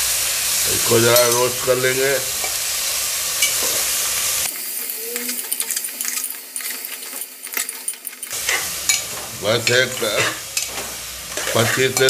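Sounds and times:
meat sizzling in hot oil: 0.0s - 12.0s
metal spoon scraping a pot: 4.6s - 12.0s.

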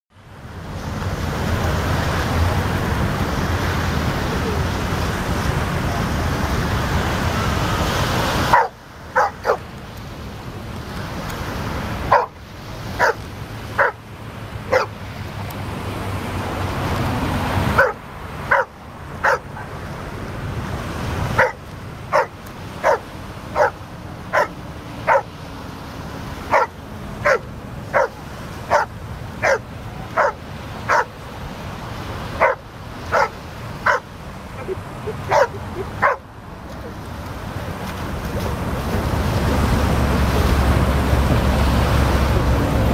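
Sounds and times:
loud steady rushing noise: 0.2s - 42.9s
surf washing: 0.2s - 42.9s
dog barking: 8.5s - 9.6s, 12.1s - 12.4s, 13.0s - 13.2s, 13.8s - 14.0s, 14.7s - 15.0s, 17.8s - 19.8s, 21.4s - 25.3s, 26.5s - 31.2s, 32.4s - 36.2s.

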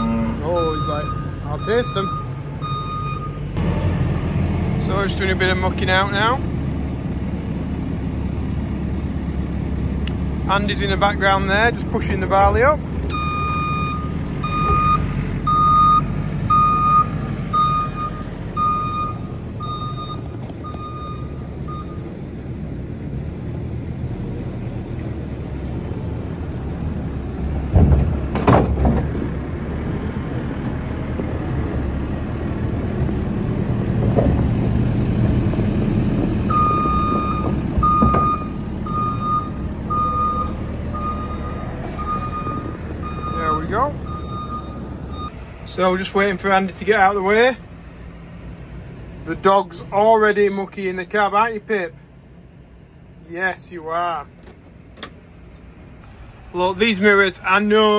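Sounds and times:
reversing alarm beeps: 0.0s - 3.4s, 13.1s - 22.0s, 36.5s - 45.4s
diesel engine running: 0.0s - 57.9s.

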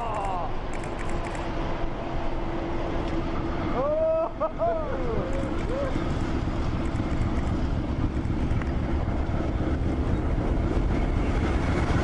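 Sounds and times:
diesel locomotive engine rumble: 0.0s - 12.0s
snow blasting: 0.0s - 12.0s
wind buffeting microphone: 5.1s - 12.0s.

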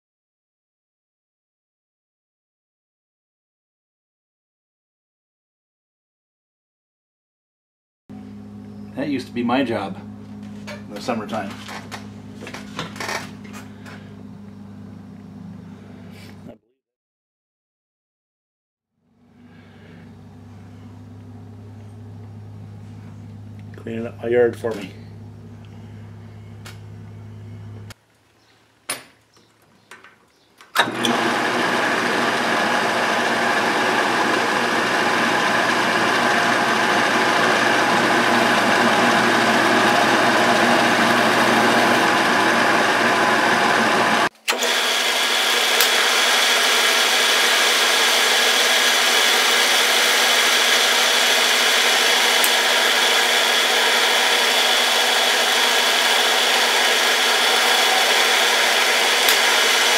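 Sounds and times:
metal lathe cutting: 30.8s - 59.9s.

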